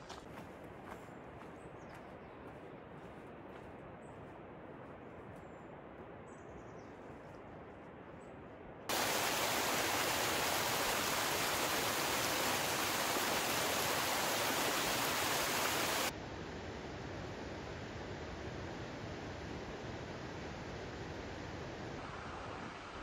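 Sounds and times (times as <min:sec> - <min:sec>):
rushing water: 0:08.9 - 0:16.1.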